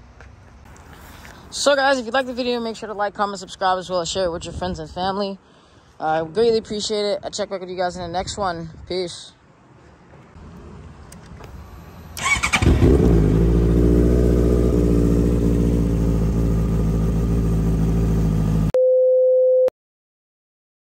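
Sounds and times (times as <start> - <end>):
motorcycle engine idling: 12.2 - 18.7.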